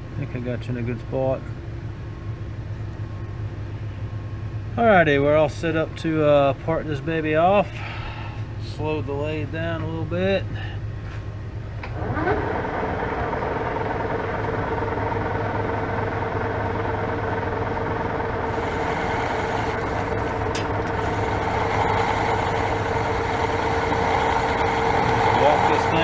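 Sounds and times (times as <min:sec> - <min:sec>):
lathe motor humming: 0:11.9 - 0:26.0.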